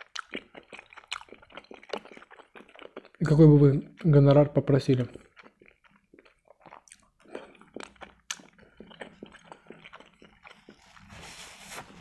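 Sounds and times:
wet chewing: 0:00.0 - 0:03.4, 0:05.0 - 0:11.1
paper napkin rustling: 0:10.8 - 0:12.0.

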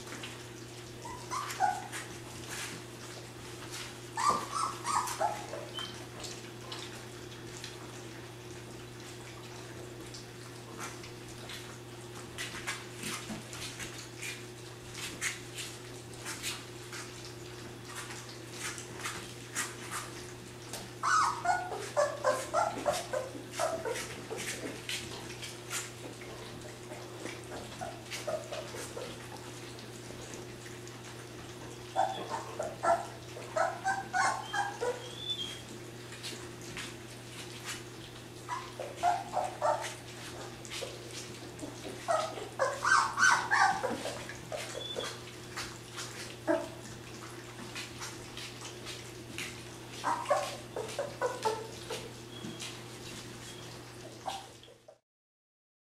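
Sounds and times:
low electrical hum: 0:00.0 - 0:55.0
puppies lapping food: 0:00.0 - 0:55.0
puppies whining and yelping: 0:00.6 - 0:02.3, 0:03.7 - 0:06.9, 0:21.0 - 0:36.6, 0:37.6 - 0:48.8, 0:49.4 - 0:55.0.

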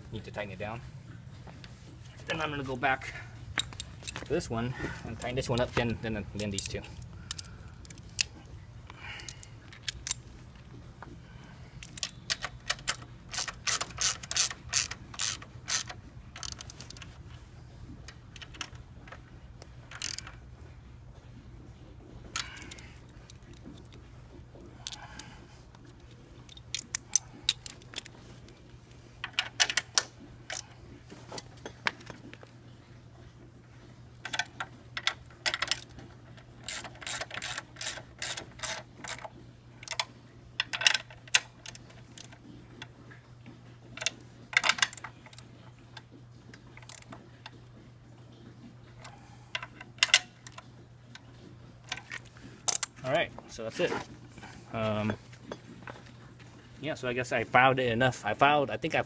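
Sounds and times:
ratchet wrench clicking: 0:11.8 - 0:17.0, 0:20.0 - 0:20.2, 0:36.6 - 0:39.2.

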